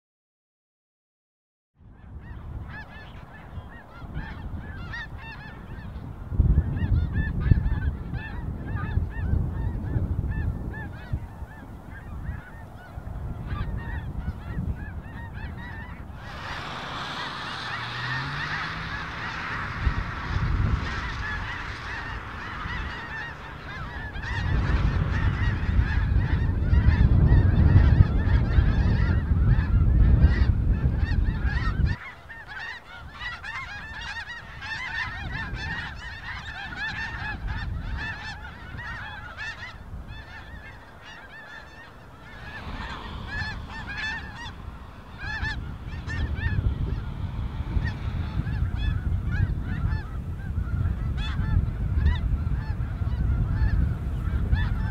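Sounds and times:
geese honking in flight: 2.0s - 54.9s
low rumble: 15.6s - 31.5s, 41.5s - 54.9s.

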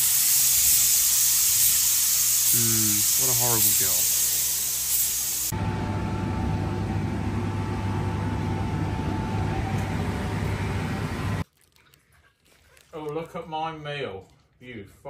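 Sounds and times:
water spraying hiss: 0.0s - 5.5s.

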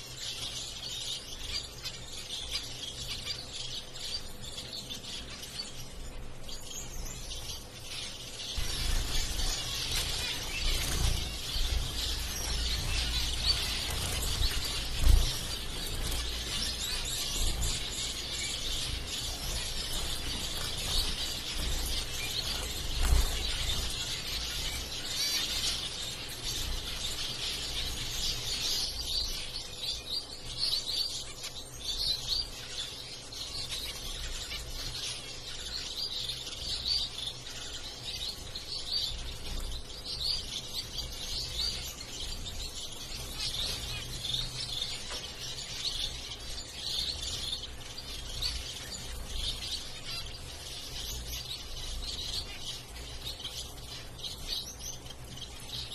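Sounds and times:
finches chirping: 0.0s - 55.9s.

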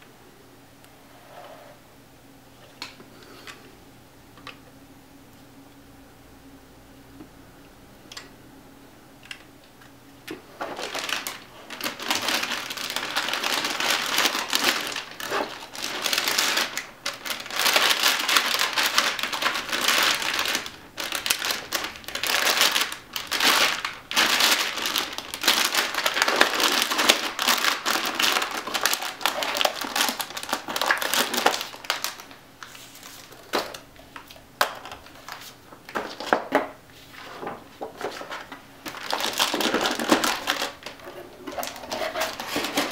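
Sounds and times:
plastic bag crinkling: 10.5s - 42.9s.

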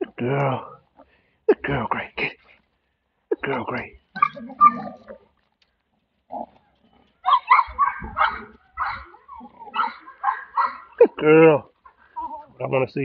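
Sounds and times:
dog grunting and growling: 7.9s - 11.3s.

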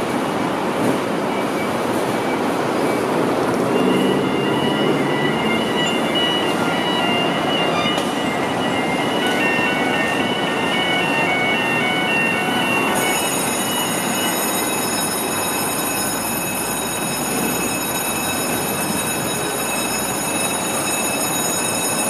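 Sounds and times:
busy street noise: 0.0s - 22.0s
high-pitched squealing whine: 1.4s - 21.4s
fire truck pulling out: 2.0s - 21.8s.

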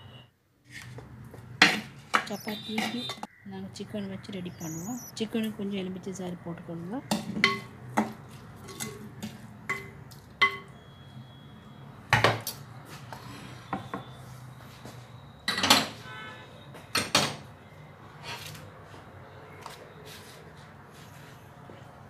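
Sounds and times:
wooden spoon against clay pot: 0.8s - 3.3s.

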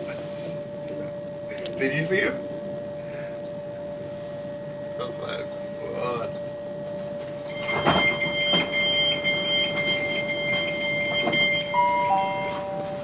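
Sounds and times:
electric train whine: 0.0s - 13.0s
higher steady tones: 0.6s - 13.0s
falling two-note chime: 7.5s - 13.0s.

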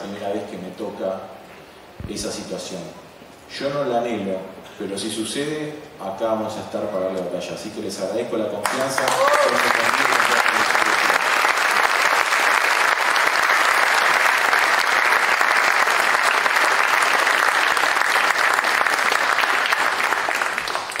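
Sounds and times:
audience applauding: 8.6s - 21.0s.

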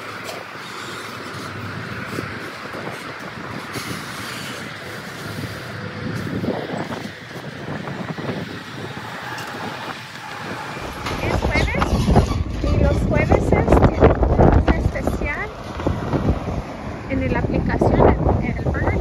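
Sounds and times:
tyres rolling: 0.0s - 17.3s
truck engine running: 0.0s - 19.0s
trailer knocks: 8.9s - 16.6s.

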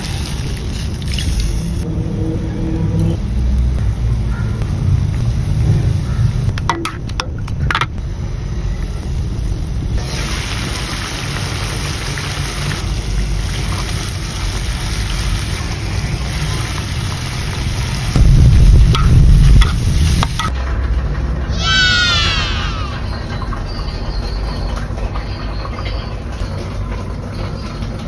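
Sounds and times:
chicken sizzling in a wok: 0.0s - 2.2s, 2.8s - 6.5s, 8.0s - 20.5s
low rumble: 1.4s - 10.0s, 16.9s - 23.5s.

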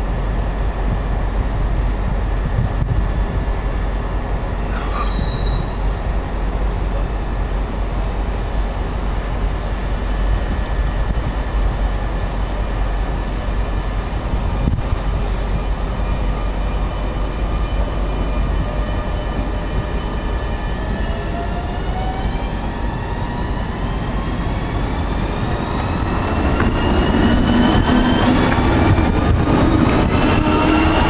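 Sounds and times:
train low rumble: 0.0s - 31.0s
train electric whine: 13.4s - 31.0s.

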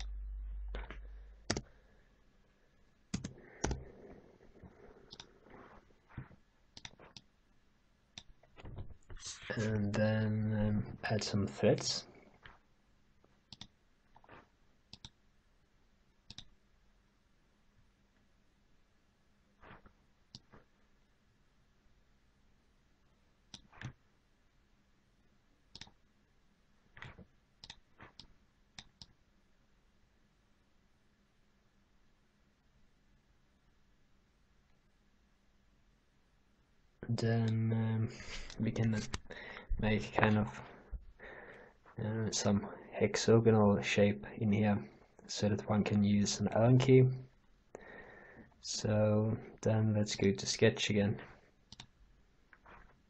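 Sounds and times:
faint room hum: 0.0s - 53.0s
computer mouse clicks: 0.8s - 1.7s, 3.1s - 3.8s, 5.1s - 5.3s, 6.8s - 7.3s, 13.5s - 14.3s, 14.9s - 15.2s, 16.3s - 16.5s, 23.5s - 24.0s, 25.7s - 26.0s, 27.0s - 29.2s, 51.7s - 51.9s.

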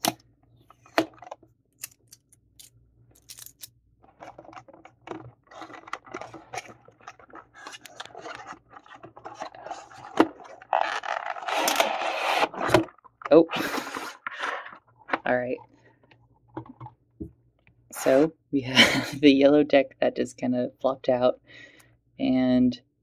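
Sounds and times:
cardboard rustling and scraping: 4.0s - 15.3s.

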